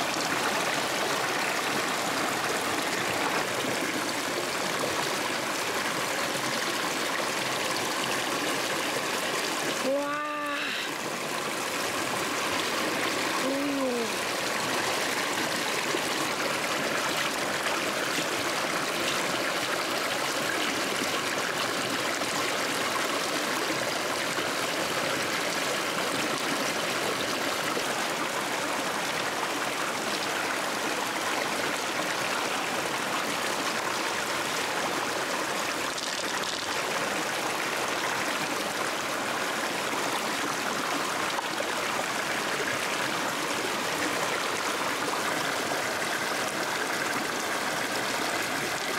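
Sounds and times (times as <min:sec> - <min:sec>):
river water flowing over rocks: 0:00.0 - 0:48.9.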